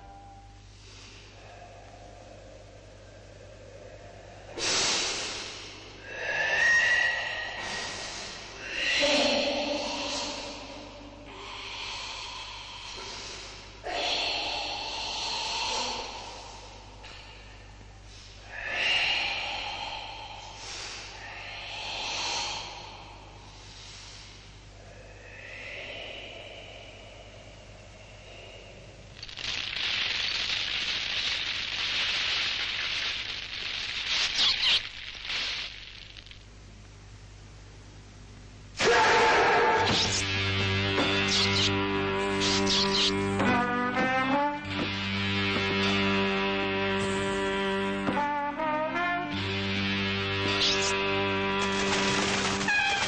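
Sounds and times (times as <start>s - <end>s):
forceful hissing exhalations: 0.7s - 36.2s.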